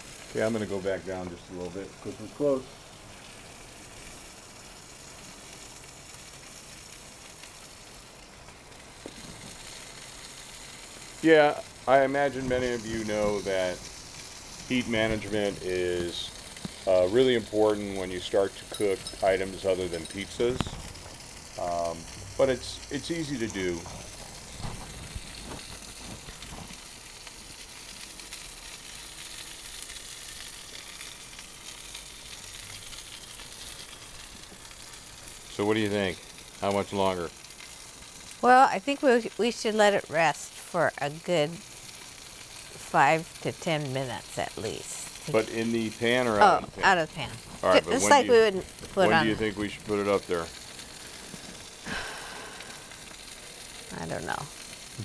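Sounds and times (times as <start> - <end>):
steak sizzling in a pan: 0.0 - 55.0.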